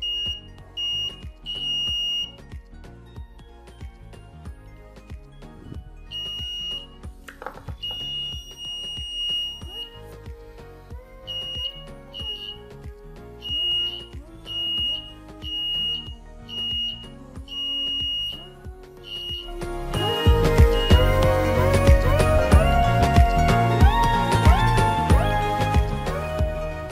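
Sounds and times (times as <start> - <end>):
buzzer beeping: 0.0 - 2.4, 6.1 - 7.0, 7.8 - 10.0, 11.3 - 12.6, 13.4 - 21.3
background music: 0.0 - 26.9.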